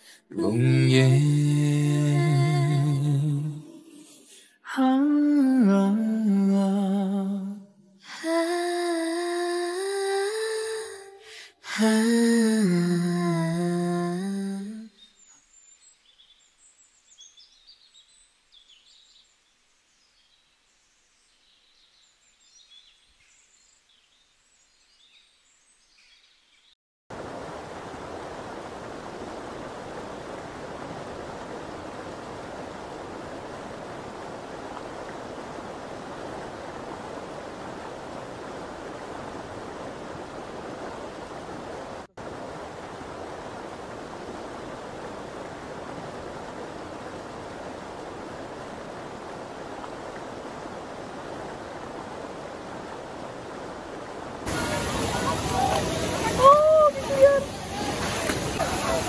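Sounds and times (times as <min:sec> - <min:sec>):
person humming a melody: 0:00.3 - 0:14.9
stream running over stones: 0:27.1 - 0:59.0.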